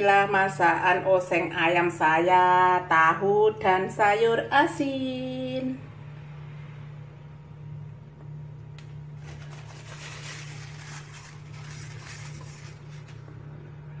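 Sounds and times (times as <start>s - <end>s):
steady low hum: 0.0s - 14.0s
faint crackling and rustling: 9.2s - 13.4s.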